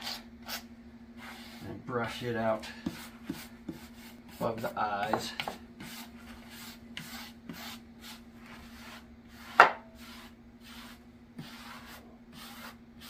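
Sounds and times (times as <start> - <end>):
stiff brush rubbing through hair: 5.8 - 13.0.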